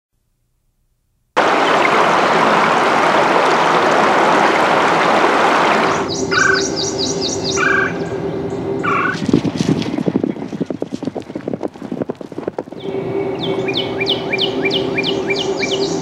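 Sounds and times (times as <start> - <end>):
water rushing over rocks: 1.4 - 6.1
bird chirping: 5.8 - 9.2, 12.8 - 16.0.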